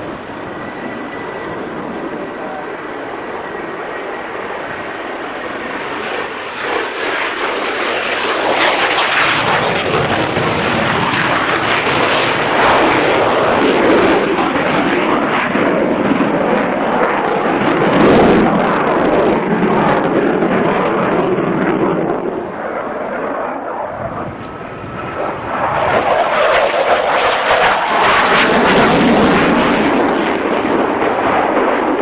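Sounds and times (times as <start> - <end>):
aircraft engine rushing: 0.0 - 32.0.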